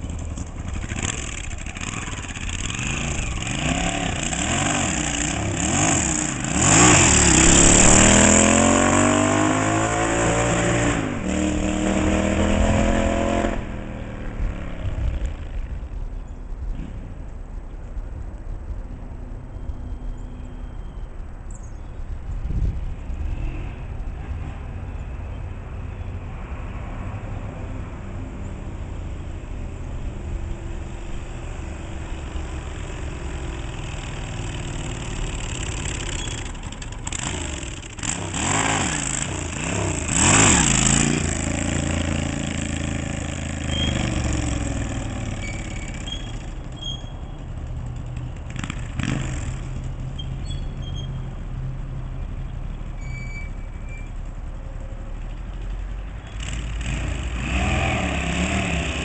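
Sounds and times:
motorcycle engine revving: 0.0s - 15.8s, 30.0s - 51.2s, 56.2s - 59.0s.

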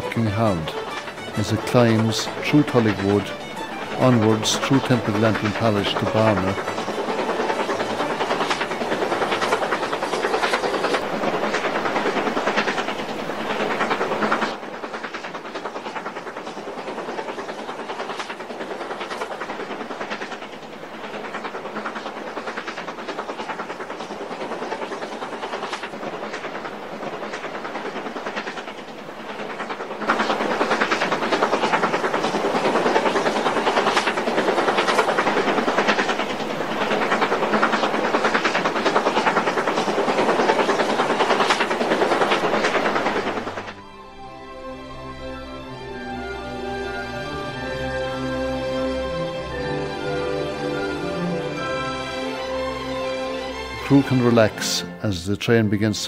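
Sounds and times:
steam hissing: 0.0s - 43.8s
steam locomotive exhaust beats: 0.0s - 56.0s.

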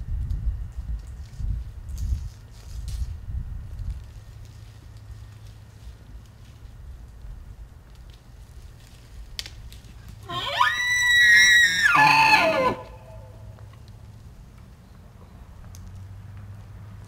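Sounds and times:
elk bugling: 10.2s - 13.5s.

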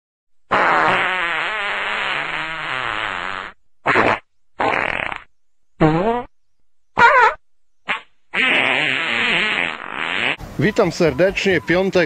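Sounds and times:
comic fart sound effects: 0.5s - 6.3s, 7.0s - 10.4s.

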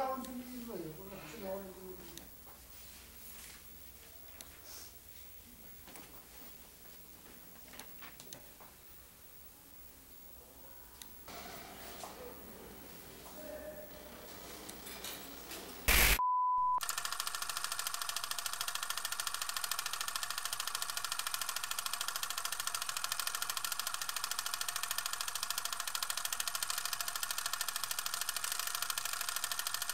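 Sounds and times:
burst of static: 15.9s - 16.2s
single beep: 15.9s - 16.8s
film projector clattering: 16.8s - 29.9s.

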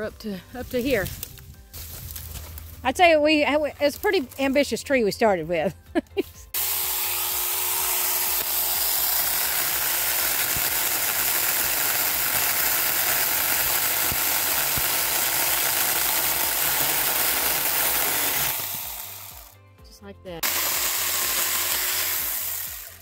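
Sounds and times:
mini chainsaw cutting log: 6.5s - 19.6s, 20.4s - 23.0s.

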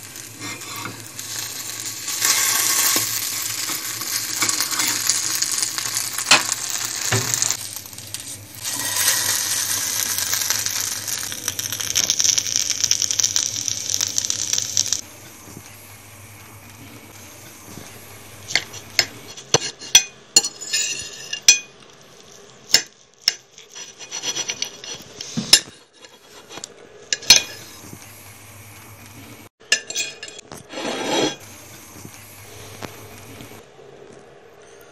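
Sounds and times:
knife and fork sawing toast: 23.6s - 25.3s
metal clinking on plate: 29.7s - 30.5s.

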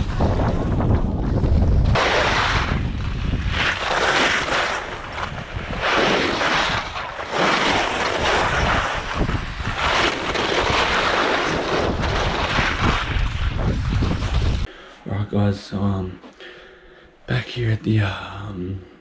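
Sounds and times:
wind buffeting microphone: 0.0s - 3.9s, 4.8s - 7.1s, 7.8s - 14.7s
skis sliding on snow: 1.9s - 14.7s.

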